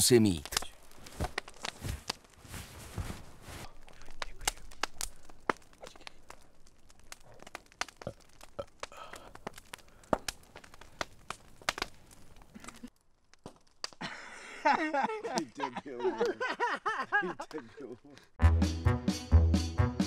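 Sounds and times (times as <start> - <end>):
campfire crackling and popping: 0.0 - 18.4
footsteps on rough ground: 0.6 - 3.9.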